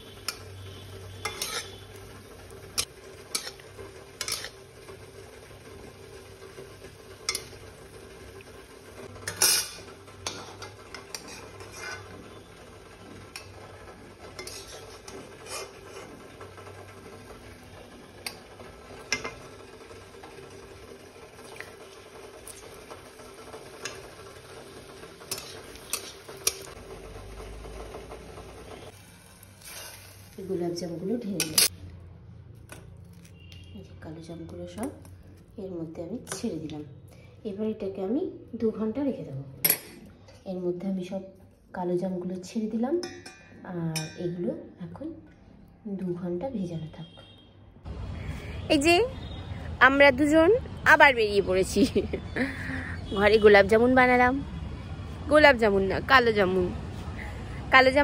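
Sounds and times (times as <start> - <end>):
metal spatula scraping a wok: 0.0 - 4.8, 9.0 - 12.5, 13.3 - 16.5, 25.2 - 26.8, 29.6 - 30.3
faint sizzle: 0.0 - 31.7.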